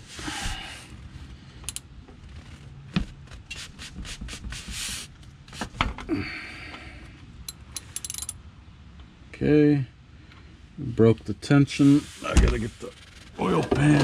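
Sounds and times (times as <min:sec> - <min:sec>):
wrench rubbing and scraping: 0:07.5 - 0:08.4.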